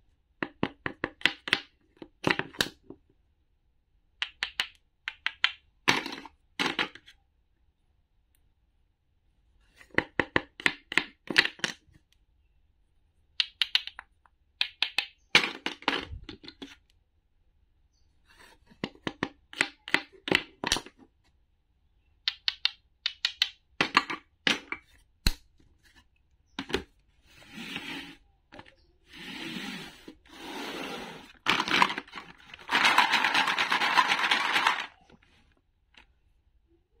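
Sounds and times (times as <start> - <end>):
toy pieces clicking on wooden board: 4.2 - 7.0, 13.4 - 14.0, 14.6 - 15.9, 22.3 - 24.8, 31.5 - 35.0
pieces rattling in a plastic tray: 31.4 - 35.0.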